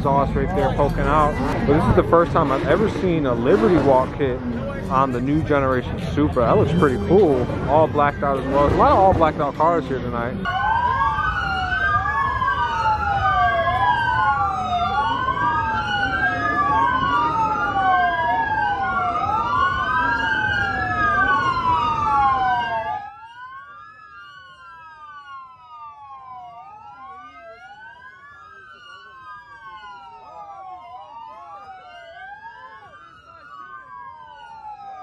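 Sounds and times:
dense low rumble: 0.0s - 10.4s
police sirens wailing: 0.0s - 35.0s.

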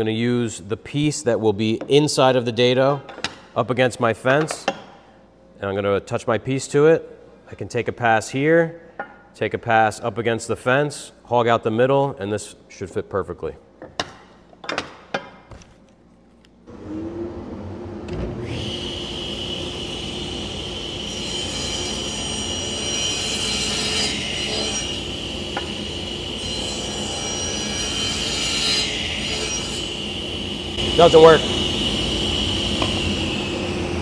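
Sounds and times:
table saw cutting wood: 16.7s - 34.0s
table saw whining: 16.7s - 34.0s.

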